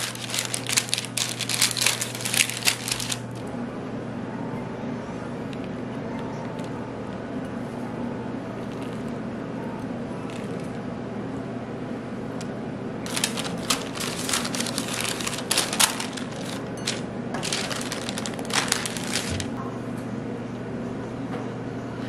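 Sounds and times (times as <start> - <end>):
dense crackling and crinkling: 0.0 - 3.5, 13.0 - 19.6.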